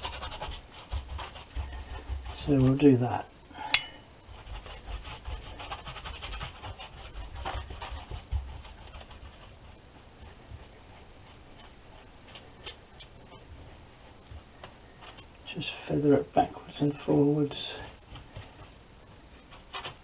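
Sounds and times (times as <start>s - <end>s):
paintbrush scrubbing on board: 0.0s - 3.1s, 4.3s - 12.7s
small ticks: 10.6s - 13.5s.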